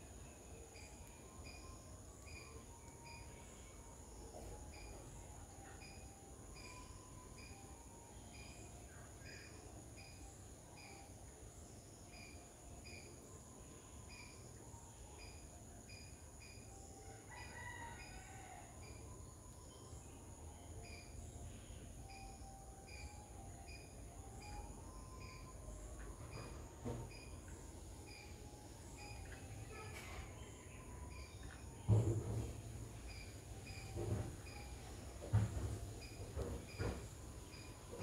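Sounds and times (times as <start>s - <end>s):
high insect drone: 0.0s - 38.0s
distant rooster crowing: 16.9s - 20.1s.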